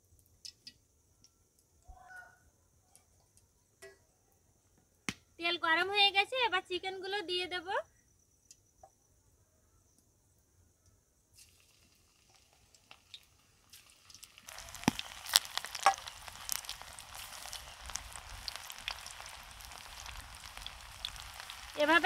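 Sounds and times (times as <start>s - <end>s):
food deep-frying in oil: 0.0s - 1.6s, 11.3s - 22.0s
oil crackles and pops: 0.0s - 2.0s, 11.3s - 22.0s.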